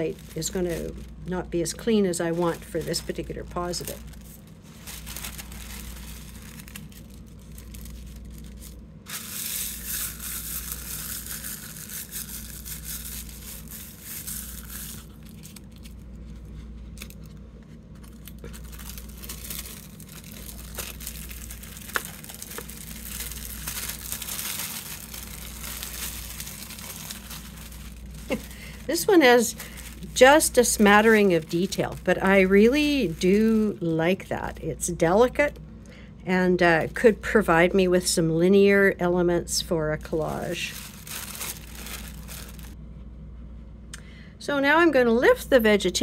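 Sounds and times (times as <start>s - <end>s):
tissue paper rustling and crinkling: 0.0s - 16.4s, 18.0s - 33.9s, 40.0s - 42.8s.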